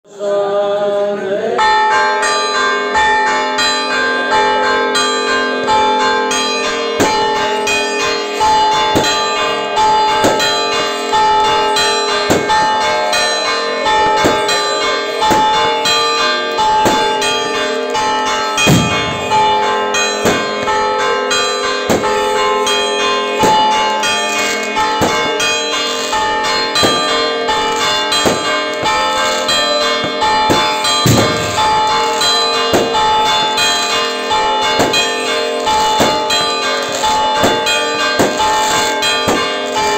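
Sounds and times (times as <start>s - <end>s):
church bells pealing: 0.1s - 39.9s
deep booms: 18.6s - 19.6s.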